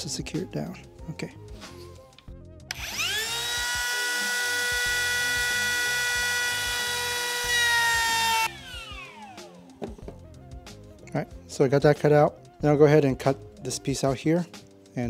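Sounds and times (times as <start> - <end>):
router whining while cutting wood: 2.7 - 9.7.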